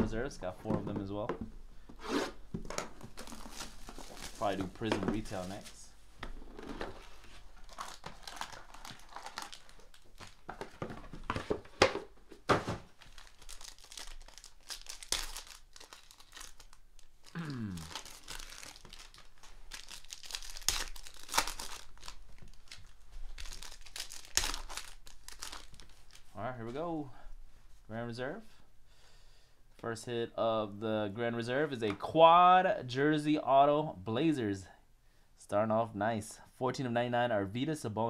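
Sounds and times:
cards rustling: 0:02.5 - 0:26.4
wrappers crinkling and tearing: 0:02.9 - 0:11.8, 0:12.8 - 0:26.4.

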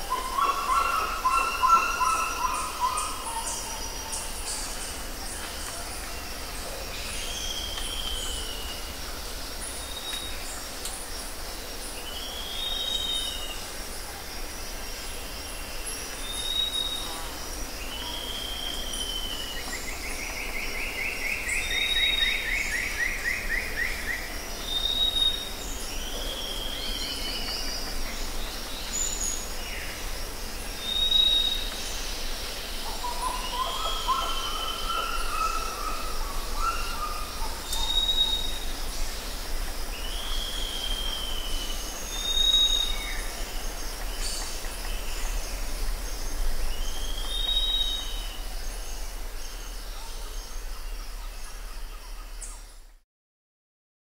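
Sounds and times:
background hiss: 0:00.0 - 0:52.9
songbirds singing: 0:00.0 - 0:52.9.

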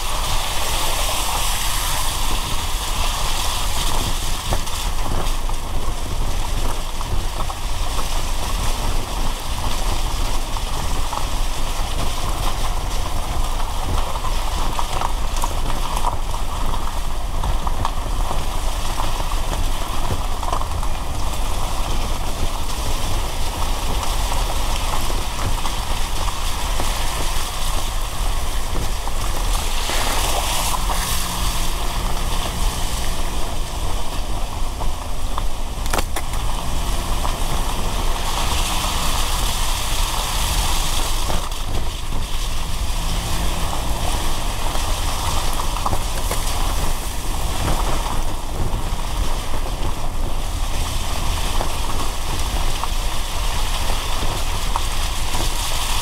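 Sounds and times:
engine hum: 0:00.0 - 0:56.0
low road rumble: 0:00.0 - 0:56.0
tyre hiss on wet road: 0:00.0 - 0:56.0
car swish: 0:28.4 - 0:52.5.

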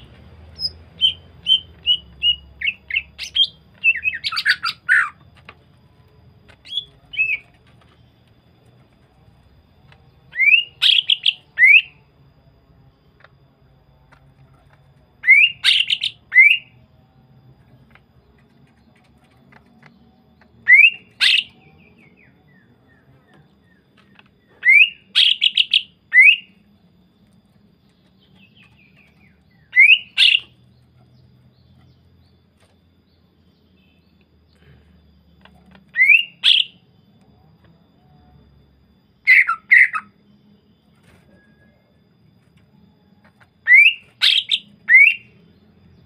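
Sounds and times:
bird whistling rising notes: 0:00.0 - 0:05.2, 0:10.3 - 0:12.0, 0:15.2 - 0:16.8, 0:20.6 - 0:23.1, 0:29.5 - 0:30.6, 0:35.9 - 0:36.8, 0:39.2 - 0:40.2, 0:43.6 - 0:45.4.

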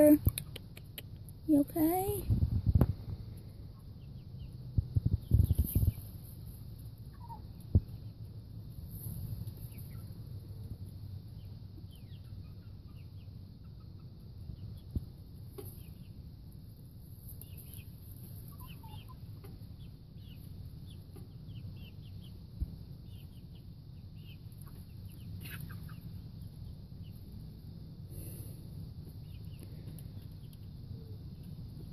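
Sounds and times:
hen clucking: 0:06.9 - 0:08.2, 0:11.4 - 0:14.8, 0:17.4 - 0:22.4, 0:23.2 - 0:27.2
hen chirping calls: 0:18.5 - 0:22.3.

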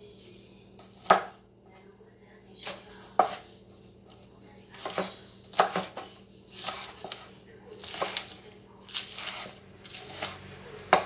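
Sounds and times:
cleaver chopping on wooden board: 0:00.9 - 0:01.3, 0:04.8 - 0:06.0, 0:09.1 - 0:11.0.

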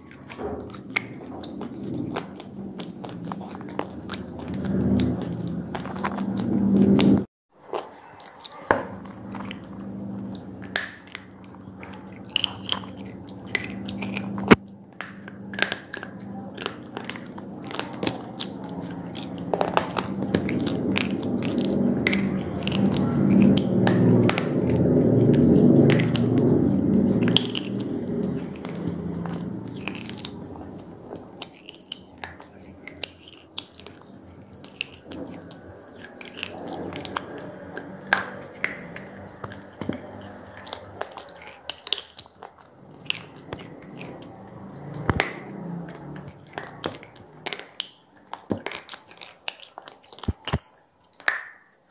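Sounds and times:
low chewing sound: 0:00.0 - 0:51.9
slate cracking between teeth: 0:10.6 - 0:51.7.

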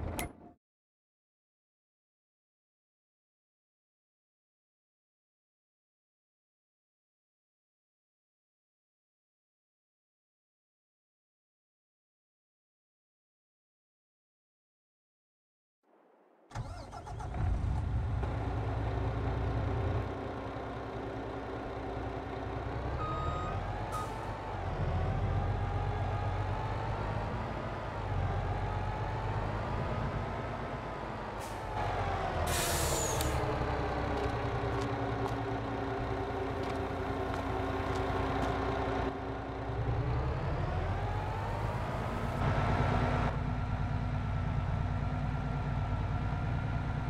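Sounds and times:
truck engine revving: 0:16.6 - 0:47.0
air brake hiss: 0:32.5 - 0:33.4.

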